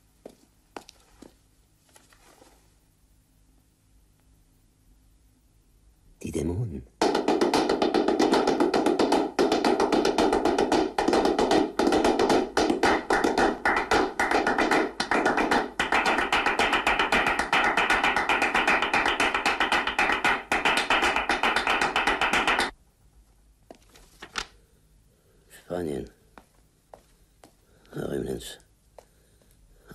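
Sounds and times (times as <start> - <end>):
rapid percussive clapping: 7.0 - 22.8.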